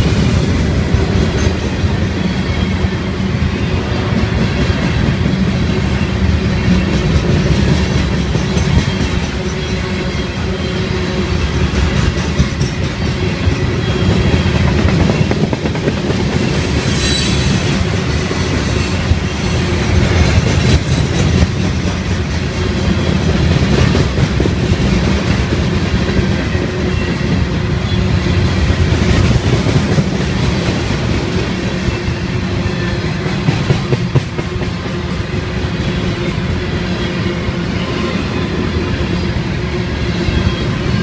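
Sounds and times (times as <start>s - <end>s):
train wheels rumbling on rails: 0.0s - 41.0s
clickety-clack over rail joints: 3.9s - 17.0s, 17.6s - 37.0s
faint wheel squeal: 16.8s - 17.8s.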